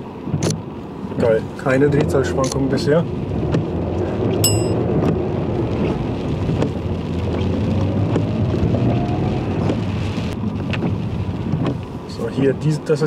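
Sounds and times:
car engine and road rumble: 0:00.0 - 0:13.0
short bell chime: 0:04.4 - 0:04.8.

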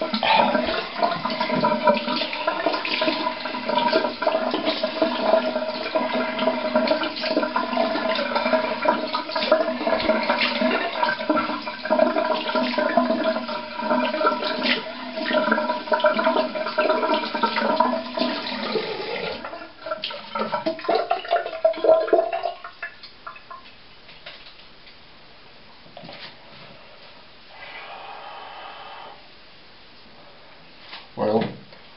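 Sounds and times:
tap water running into sink: 0:00.0 - 0:23.7.

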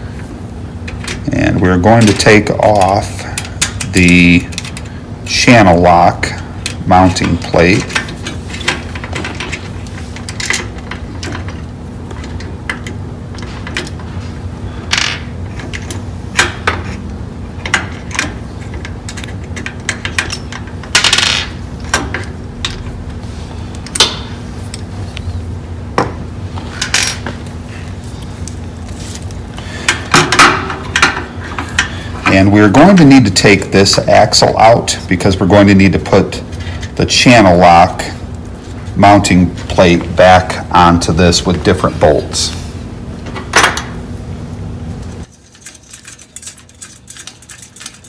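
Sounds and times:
low hum: 0:06.4 - 0:34.0.

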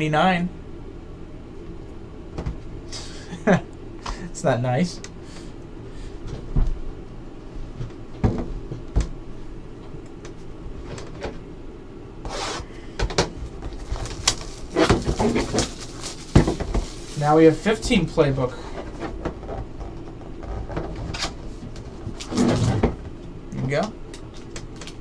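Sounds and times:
plastic wrapping crackling and tearing: 0:13.7 - 0:17.7.

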